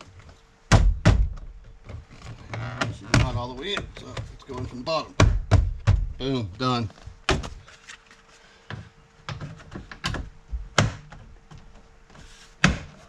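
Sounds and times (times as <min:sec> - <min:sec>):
faint steady hum: 0:00.0 - 0:13.0
car door knocks and clunks: 0:05.2 - 0:06.2.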